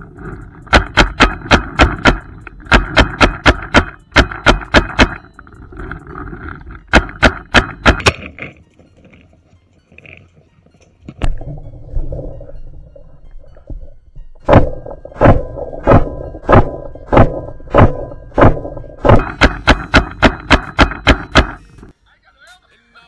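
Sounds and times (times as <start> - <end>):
paintball marker firing: 0.7 - 5.2, 6.9 - 8.4, 14.5 - 21.7.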